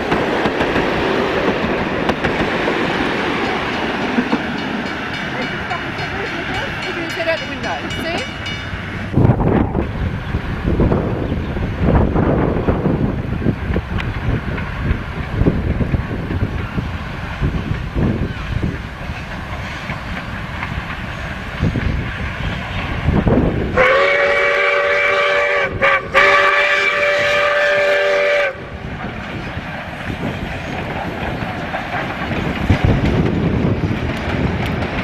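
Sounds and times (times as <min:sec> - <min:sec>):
wind rumbling on microphone: 0:08.7 - 0:35.0
steam locomotive chime whistle: 0:23.8 - 0:28.7.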